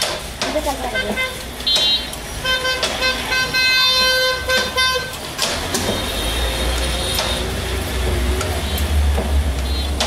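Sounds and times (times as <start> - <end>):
vehicle horns honking: 0.9 - 5.2, 5.8 - 7.6, 9.6 - 10.0.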